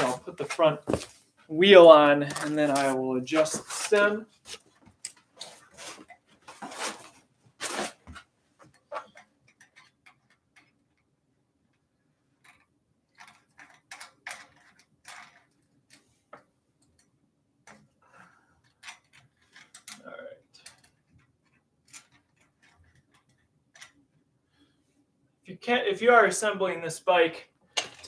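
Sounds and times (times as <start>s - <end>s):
hands handling bike parts: 0.0s - 1.5s, 2.2s - 10.7s.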